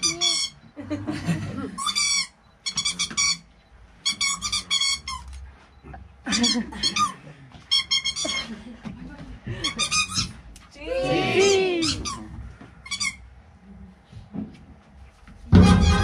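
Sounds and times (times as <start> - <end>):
clown squeaker squeaking: 0.0 - 0.6, 1.8 - 3.4, 4.0 - 5.3, 7.7 - 8.5, 9.7 - 10.3, 15.6 - 16.0.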